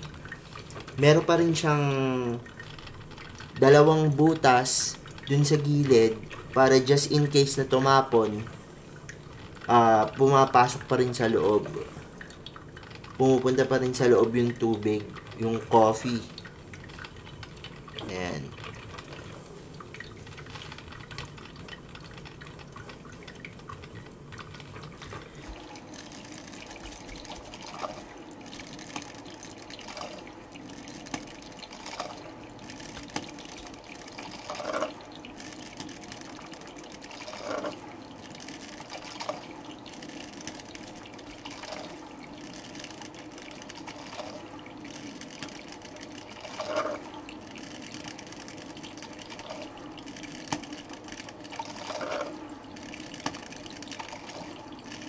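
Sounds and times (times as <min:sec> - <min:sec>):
coffee maker gurgling: 0:00.0 - 0:55.0
coffee trickling into carafe: 0:00.0 - 0:55.0.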